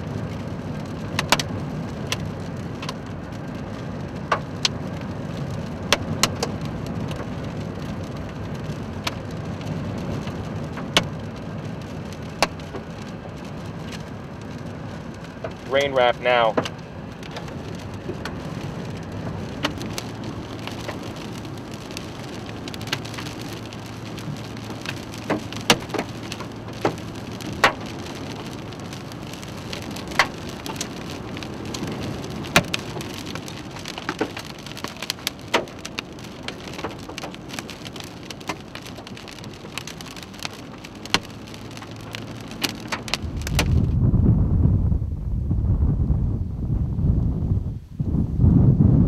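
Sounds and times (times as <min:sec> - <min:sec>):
rain pelting a car: 0:00.0 - 0:45.4
hailstones knocking on car: 0:00.9 - 0:03.0, 0:03.9 - 0:14.1, 0:14.7 - 0:43.9
low steady hum: 0:43.2 - 0:49.0.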